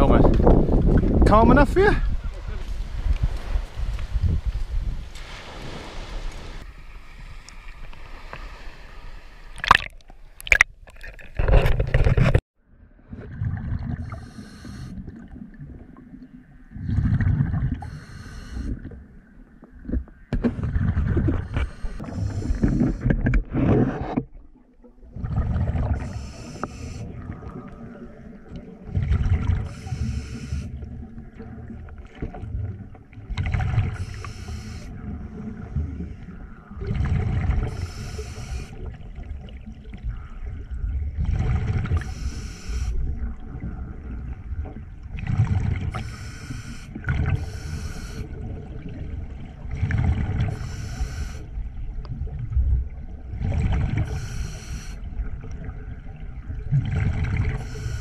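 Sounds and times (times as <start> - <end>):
bubbling exhale: 13.4 - 15.2, 20.7 - 24.0
scuba regulator hissing inhale: 14.0 - 15.0, 17.8 - 18.8, 21.4 - 23.1, 25.9 - 27.1, 29.6 - 30.8, 33.9 - 35.0, 37.7 - 38.8, 42.0 - 43.0, 45.9 - 48.4, 50.5 - 51.5, 54.0 - 55.1, 57.6 - 58.0.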